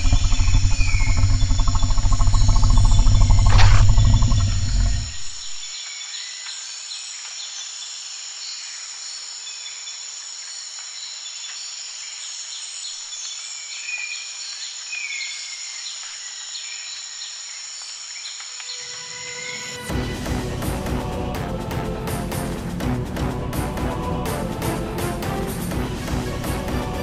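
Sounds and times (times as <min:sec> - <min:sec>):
bird chirps: 0:00.0 - 0:06.5
insects droning: 0:00.0 - 0:22.0.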